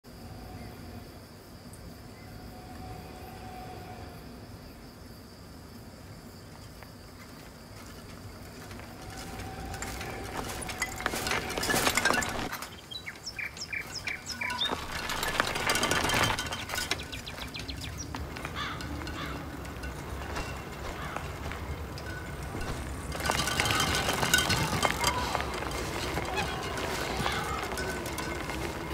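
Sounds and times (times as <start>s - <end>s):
bicycle tyres crunching on gravel: 6.7s - 28.9s
bird chirping: 9.0s - 23.1s.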